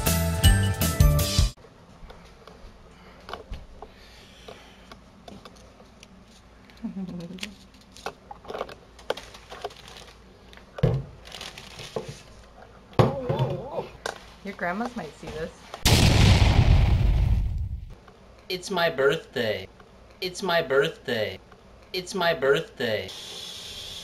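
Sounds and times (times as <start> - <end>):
paper and plastic rustling: 7.5 - 12.5.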